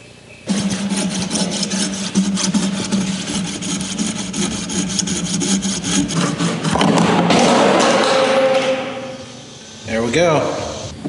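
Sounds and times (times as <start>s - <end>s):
hacksaw cutting plastic pipe: 0.5s - 9.2s.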